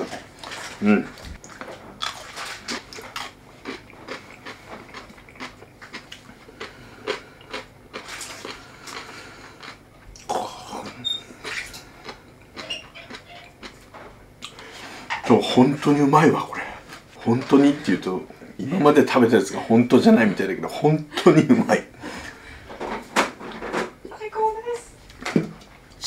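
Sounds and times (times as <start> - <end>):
person chewing: 0.0 - 14.9.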